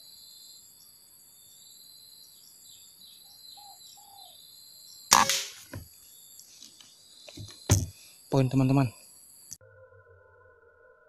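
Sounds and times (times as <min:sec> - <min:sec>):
air rifle shot: 0:05.1 - 0:05.8.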